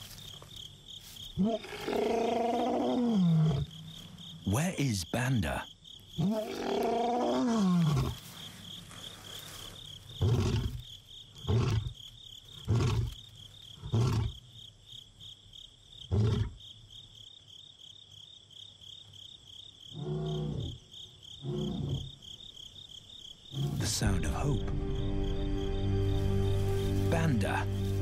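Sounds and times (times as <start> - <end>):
night insects chorus: 0.0 - 28.0
lion roaring and grunting: 6.2 - 8.2, 10.2 - 10.8, 21.4 - 22.2.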